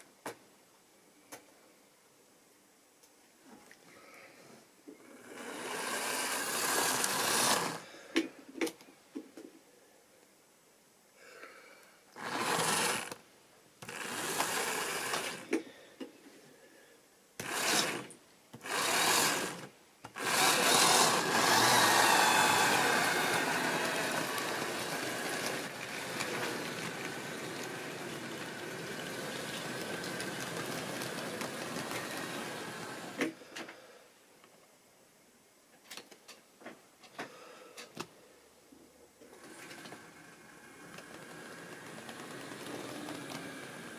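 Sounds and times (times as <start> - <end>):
model train wheels on track: 5.2 - 7.9, 12.2 - 13.2, 13.8 - 15.6, 17.4 - 33.7, 39.3 - 43.9
small electric motor whirring: 5.4 - 7.8, 12.2 - 13.2, 13.8 - 15.5, 17.4 - 33.2, 39.4 - 43.9.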